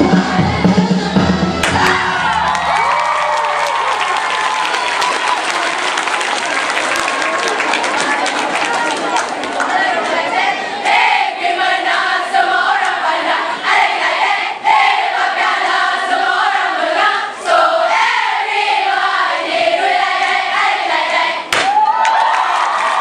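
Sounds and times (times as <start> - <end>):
crowd noise: 0.0 - 23.0
girls singing and chanting a cheer: 8.4 - 23.0.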